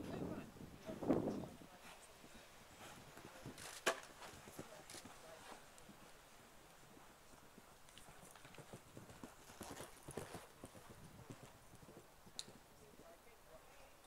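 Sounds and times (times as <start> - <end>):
horse hoofbeats on sand: 6.8 - 12.6.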